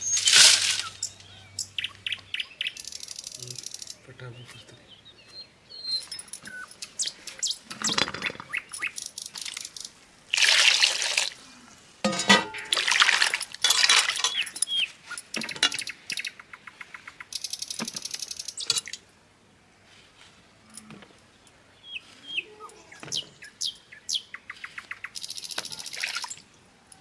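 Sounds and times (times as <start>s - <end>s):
birds chirping: 0.0s - 9.9s, 13.9s - 19.0s, 20.7s - 26.6s.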